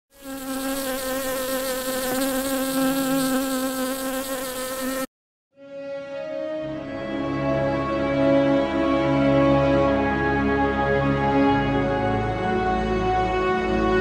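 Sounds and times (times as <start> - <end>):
buzzing bee drone: 0.1 - 5.1
soft music: 5.6 - 14.0.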